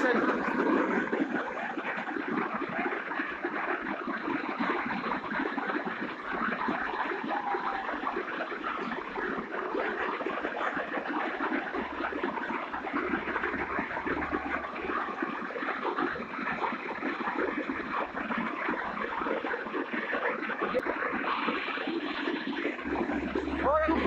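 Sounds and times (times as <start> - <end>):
river torrent rushing: 0.0 - 2.2, 5.2 - 15.6, 22.8 - 24.0.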